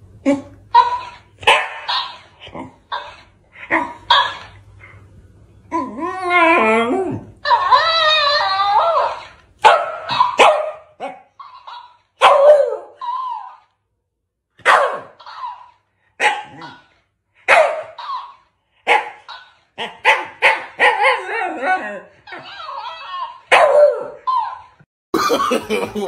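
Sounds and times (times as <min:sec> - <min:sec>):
dog barking: 0:00.8 - 0:02.2, 0:09.6 - 0:12.8, 0:14.6 - 0:15.6, 0:16.2 - 0:16.9, 0:17.5 - 0:18.2, 0:18.8 - 0:21.2, 0:23.5 - 0:24.5.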